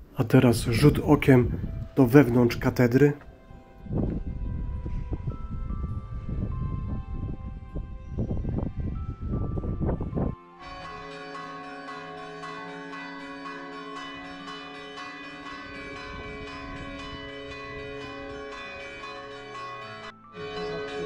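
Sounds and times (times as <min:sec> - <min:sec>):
church bells pealing: 0:04.6 - 0:21.0.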